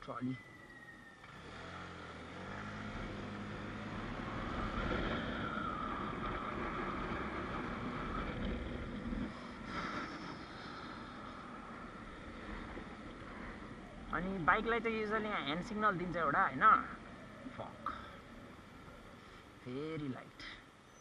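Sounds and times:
low hum: 0.0s - 20.2s
steady whine: 2.9s - 21.0s.

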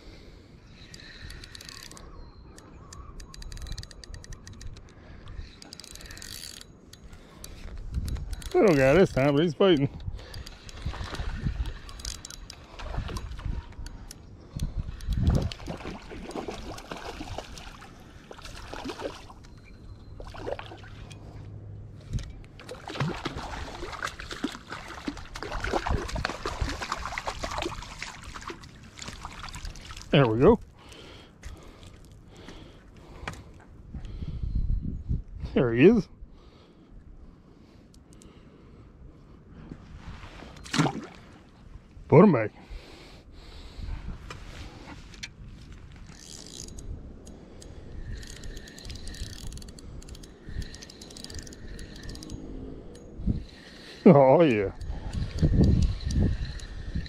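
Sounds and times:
fishing reel clicking: 0.8s - 15.6s, 46.0s - 54.0s, 54.7s - 57.0s
water sloshing and trickling: 10.3s - 32.3s, 39.8s - 42.0s
fish splashing in water: 22.6s - 30.1s.

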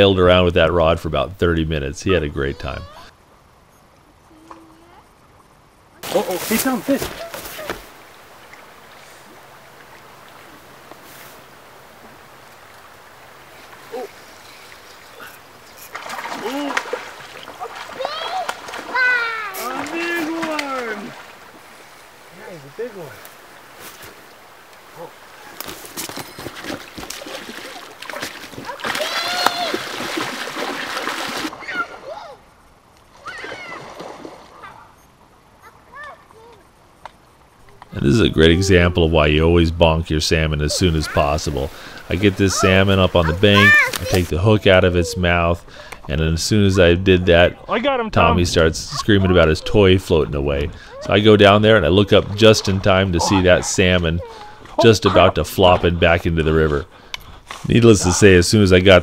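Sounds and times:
child crying out: 2.6s - 3.1s, 18.0s - 19.7s, 28.9s - 29.8s, 33.2s - 33.8s
river rushing: 6.0s - 32.2s, 38.2s - 45.7s
fish splashing and thrashing: 13.7s - 21.6s, 25.5s - 32.0s, 33.1s - 34.7s.

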